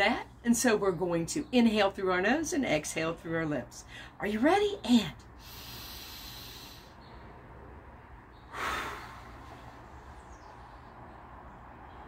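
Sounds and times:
woman exhaling slowly: 0:05.4 - 0:07.0, 0:08.5 - 0:10.2.

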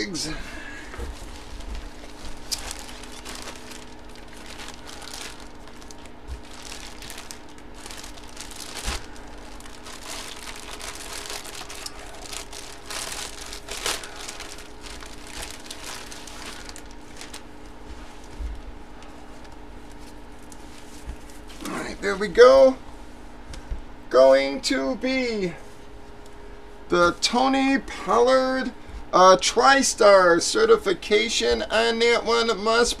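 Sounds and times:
plastic bags crinkling: 0:00.0 - 0:22.1
low electrical hum: 0:00.0 - 0:33.0.

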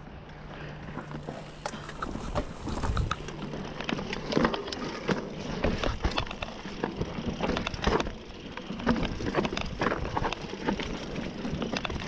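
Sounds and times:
tyres rolling on dirt: 0:00.0 - 0:12.0
bike rattling over rocks: 0:00.8 - 0:12.0.

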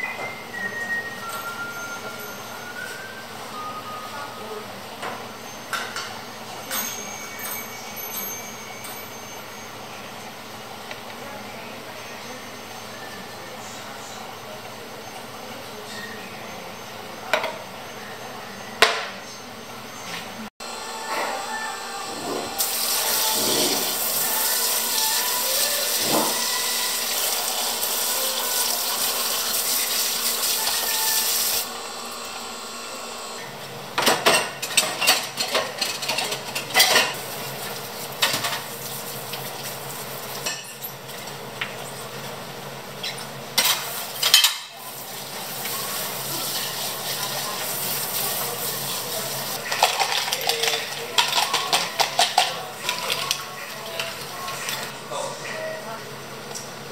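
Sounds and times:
faucet water running into sink: 0:22.6 - 0:31.7, 0:43.9 - 0:49.6
dishes clattering: 0:25.9 - 0:26.5, 0:34.0 - 0:38.7, 0:43.2 - 0:44.9, 0:49.6 - 0:54.9
ice cubes rattling into cup: 0:49.7 - 0:53.3.

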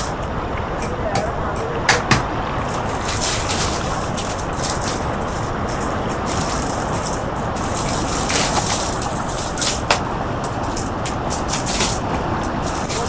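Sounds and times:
steady rushing noise: 0:00.0 - 0:13.0
plastic packaging crinkling: 0:02.6 - 0:13.0.

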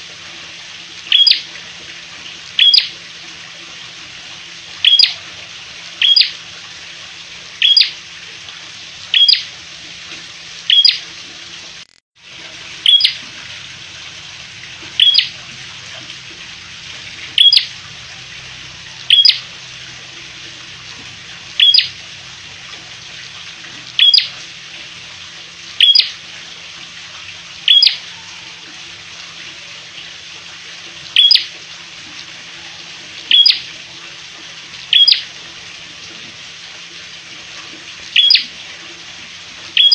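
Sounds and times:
bird chip calls: 0:01.1 - 0:01.4, 0:02.6 - 0:02.9, 0:04.8 - 0:05.2, 0:06.0 - 0:06.3, 0:07.6 - 0:07.9, 0:09.1 - 0:09.5, 0:10.7 - 0:11.0, 0:12.8 - 0:13.2, 0:15.0 - 0:15.3, 0:17.4 - 0:17.7, 0:19.1 - 0:19.4, 0:21.6 - 0:21.9, 0:24.0 - 0:24.3, 0:25.8 - 0:26.1, 0:27.7 - 0:28.0, 0:31.2 - 0:31.5, 0:33.3 - 0:33.6, 0:34.9 - 0:35.2, 0:38.2 - 0:38.5.

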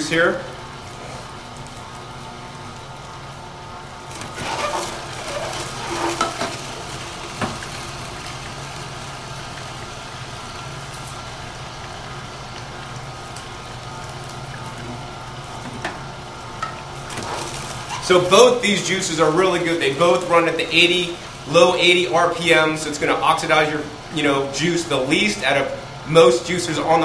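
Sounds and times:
juicer motor hum: 0:00.0 - 0:27.0
herbs crunching in juicer: 0:00.6 - 0:15.4.

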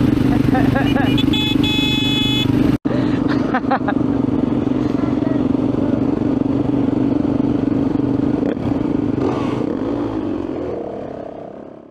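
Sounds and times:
dirt bike engine idling: 0:00.0 - 0:10.8.

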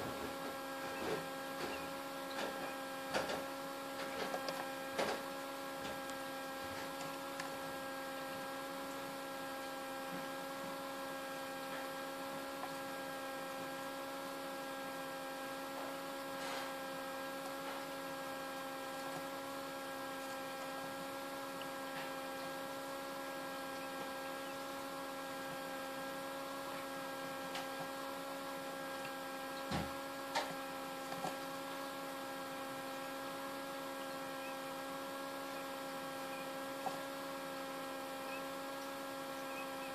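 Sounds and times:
incubator fan humming: 0:00.0 - 0:39.9.

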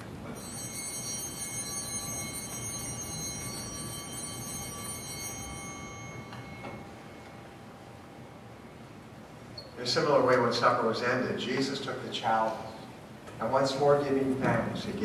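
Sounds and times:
altar bells ringing: 0:00.3 - 0:09.2.

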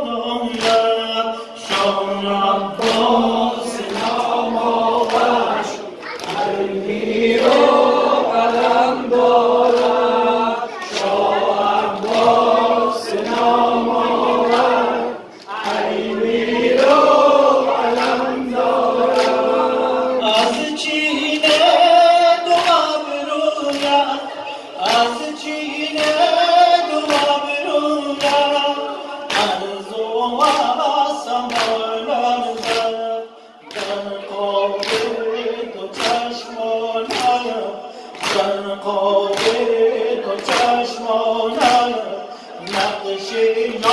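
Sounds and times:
man singing lament into microphone: 0:00.0 - 0:05.8, 0:19.7 - 0:43.9
voices joining in singing: 0:00.0 - 0:43.9
hands slapping chests: 0:02.8 - 0:03.2, 0:03.8 - 0:04.4, 0:06.1 - 0:06.6, 0:31.5 - 0:31.8, 0:33.7 - 0:34.0, 0:37.1 - 0:37.4, 0:38.1 - 0:38.6, 0:39.3 - 0:39.7, 0:40.4 - 0:40.8.

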